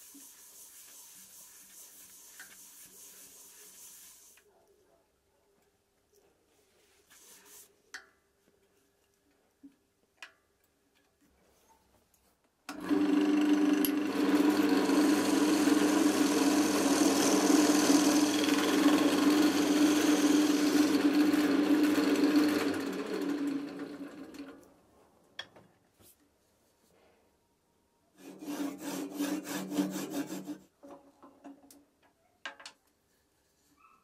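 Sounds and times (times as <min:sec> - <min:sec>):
chisel cutting spinning wood: 0:12.7 - 0:24.5, 0:28.2 - 0:30.5
wood lathe motor hum: 0:12.7 - 0:24.6.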